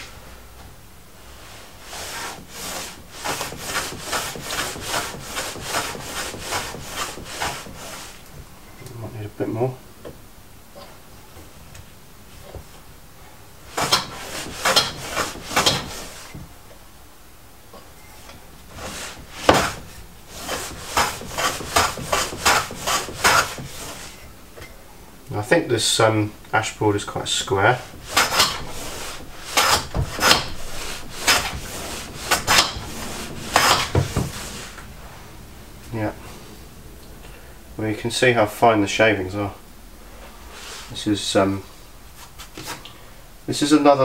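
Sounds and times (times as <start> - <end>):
hand plane strokes on wood: 1.8 - 8.2, 13.7 - 16.4, 18.7 - 24.2, 27.2 - 34.9.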